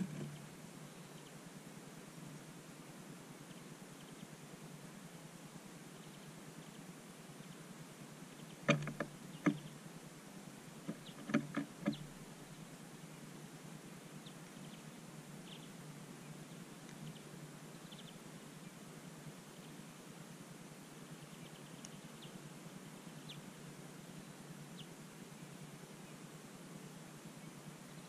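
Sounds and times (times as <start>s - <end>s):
low steady hum: 0.0s - 28.0s
sharp clicks or knocks: 8.7s - 9.6s, 10.9s - 12.1s.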